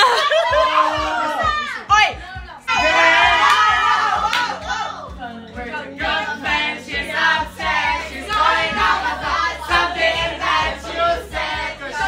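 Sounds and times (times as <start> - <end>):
karaoke song over speakers: 0.0 - 12.0
people singing along: 2.7 - 12.0.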